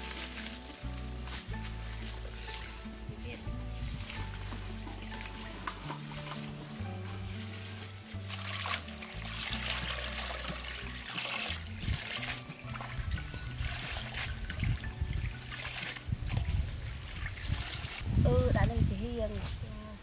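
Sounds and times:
water splashing in basin: 3.9s - 18.3s.

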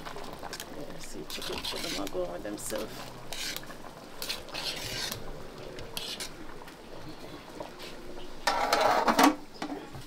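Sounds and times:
metal spoon scraping in pot: 1.3s - 5.2s, 5.9s - 6.4s, 8.4s - 9.2s.

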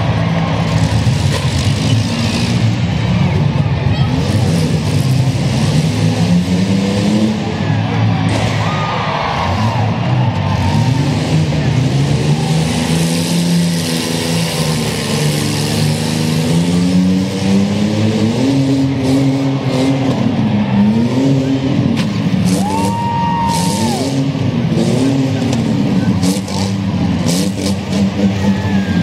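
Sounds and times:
engines revving: 0.0s - 29.0s.

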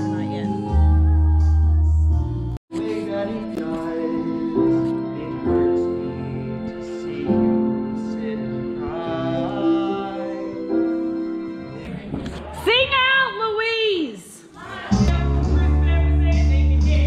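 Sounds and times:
person singing slow song: 0.0s - 12.1s
backing music: 0.0s - 13.1s, 14.6s - 17.0s.

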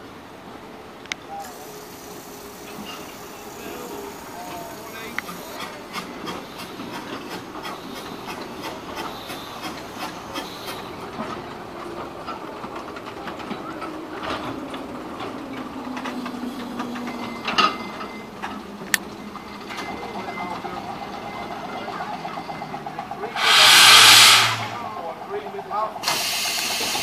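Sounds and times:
wheels clicking on rails: 1.1s - 27.0s
steam hissing: 1.4s - 11.1s, 23.2s - 25.0s, 26.0s - 27.0s.

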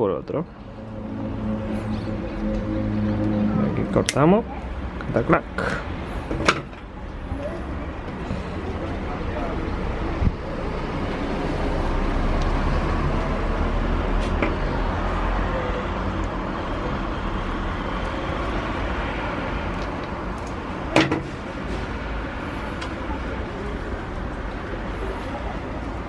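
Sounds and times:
low background rumble: 0.4s - 5.1s.

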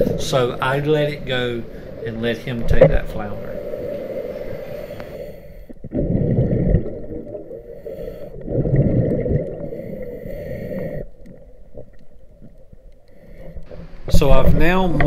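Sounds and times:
regulator exhaust bubbles underwater: 5.8s - 10.2s.

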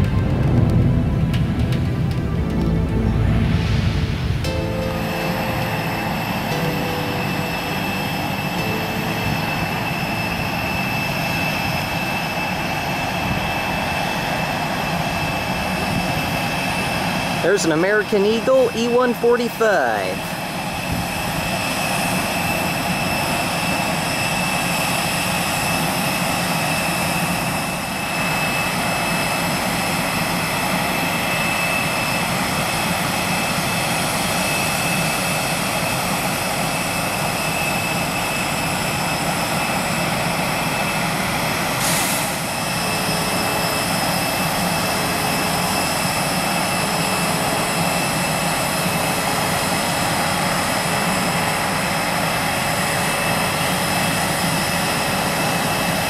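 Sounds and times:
jet engines whining and roaring: 0.0s - 56.0s
jet turbine noise: 0.0s - 56.0s
low beep: 2.2s - 12.8s.

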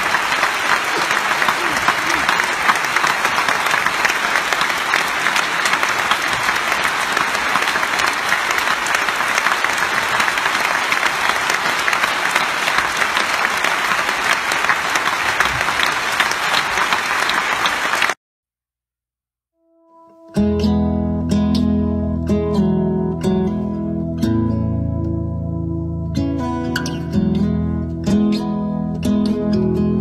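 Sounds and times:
audience applauding: 0.0s - 18.2s.

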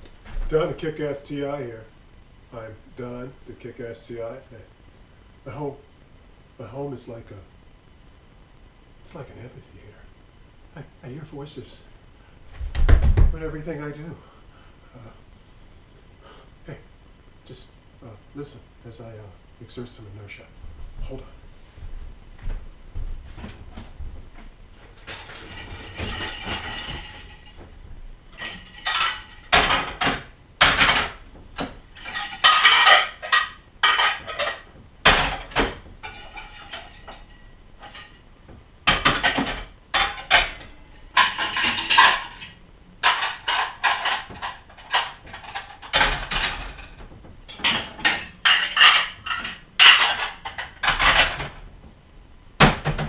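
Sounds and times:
dishes and cutlery clattering: 25.0s - 27.6s, 28.4s - 38.2s, 38.9s - 51.6s.

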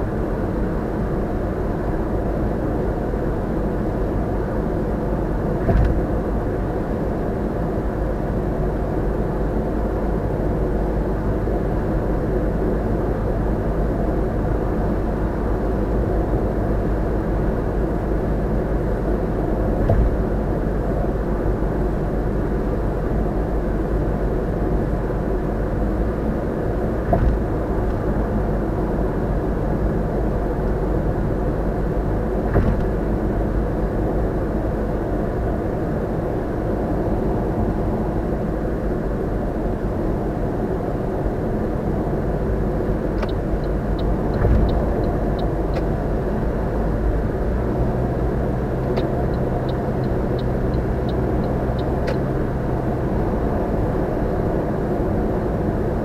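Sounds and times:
road and tyre noise in car: 0.0s - 56.0s.

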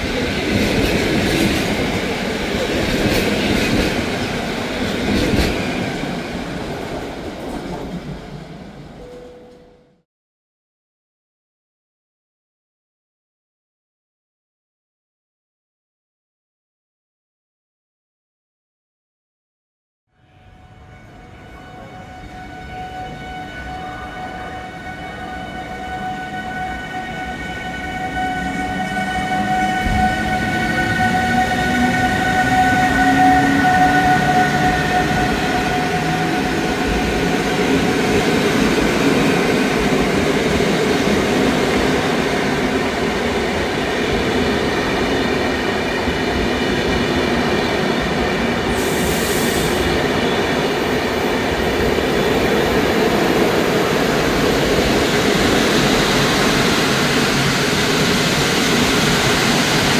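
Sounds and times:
train wheels on rails: 0.0s - 9.2s, 28.1s - 59.9s
electric locomotive whine: 20.1s - 59.9s.

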